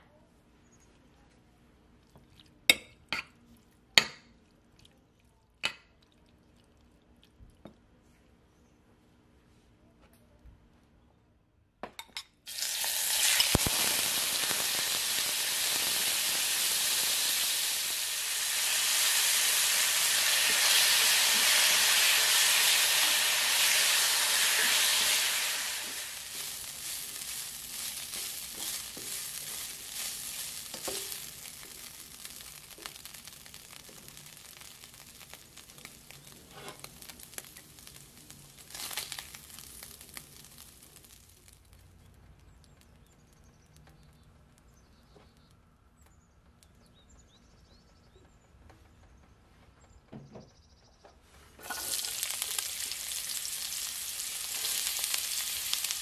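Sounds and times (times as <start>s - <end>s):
beef sizzling in oil: 12.5s - 41.8s, 51.6s - 56.0s.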